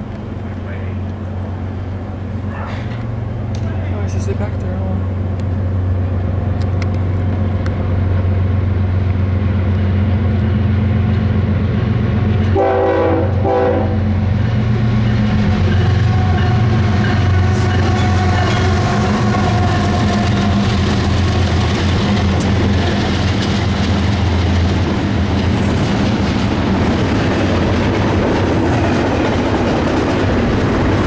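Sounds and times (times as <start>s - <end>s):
diesel locomotives running: 0.0s - 31.0s
train horn blasts: 12.5s - 14.2s, 15.9s - 20.6s
wheels clicking over rails: 15.4s - 31.0s.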